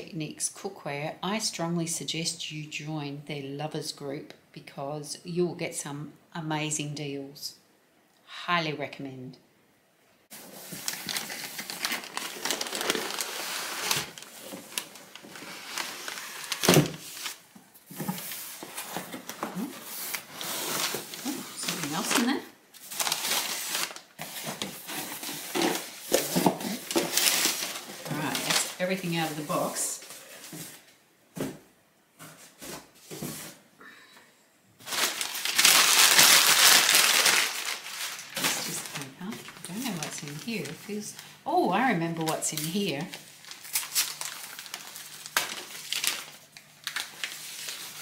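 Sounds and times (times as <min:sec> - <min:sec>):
wrapping paper rustling: 0:10.3 - 0:30.9, 0:34.8 - 0:48.0.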